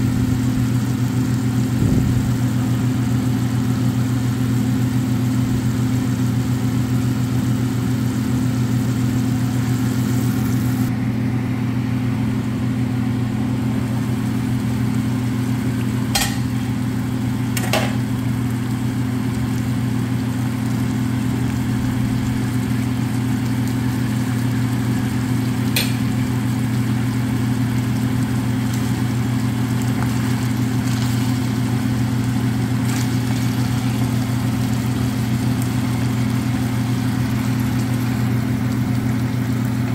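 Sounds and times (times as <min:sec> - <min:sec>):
loud low hum: 0:00.0 - 0:20.2.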